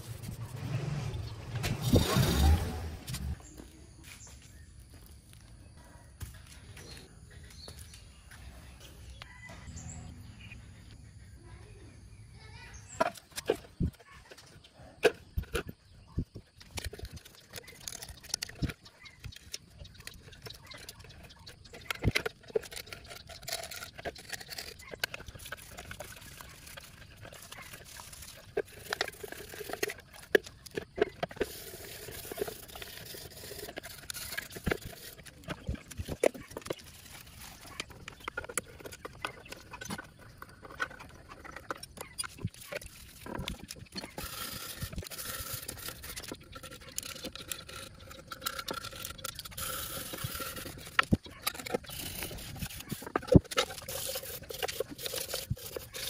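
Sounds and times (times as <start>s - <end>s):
brush scrubbing wet metal: 0.0s - 3.4s, 16.7s - 56.0s.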